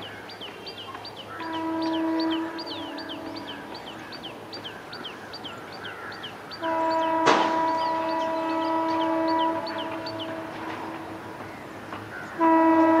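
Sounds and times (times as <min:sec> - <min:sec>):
bird chirping: 0:00.0 - 0:12.4
locomotive horn blast: 0:01.4 - 0:04.0, 0:06.6 - 0:11.4, 0:12.3 - 0:13.0.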